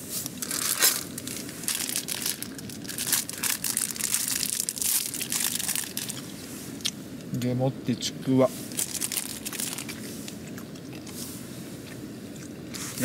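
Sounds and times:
plastic packaging crinkling: 0.2 - 6.3, 8.7 - 10.1.

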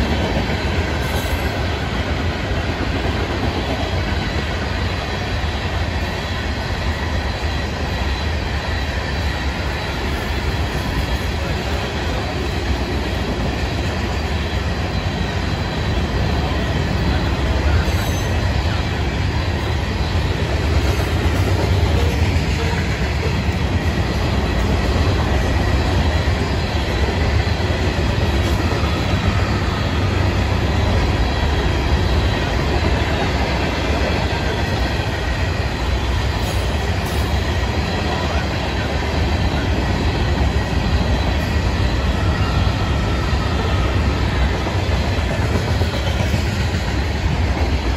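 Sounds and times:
steel wheels rumbling on rail: 0.0 - 47.9.

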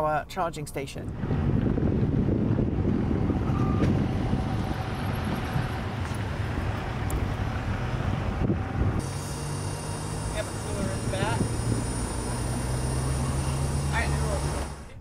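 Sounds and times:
traffic rumble: 0.0 - 15.0
wind noise on microphone: 1.0 - 9.6, 10.7 - 13.3.

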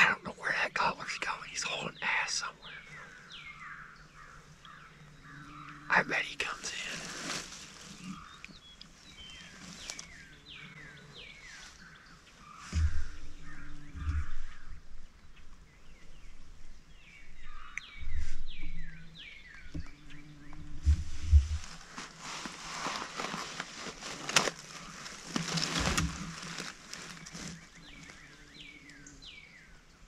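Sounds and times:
low thumps: 12.6 - 15.1, 19.6 - 22.1.

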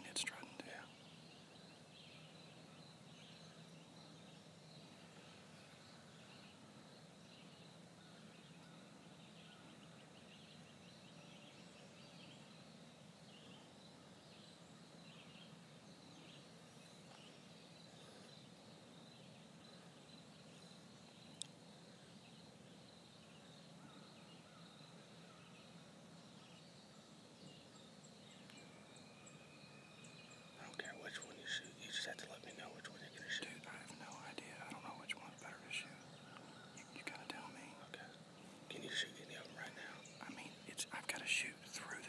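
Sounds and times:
background hiss: 0.0 - 42.0.

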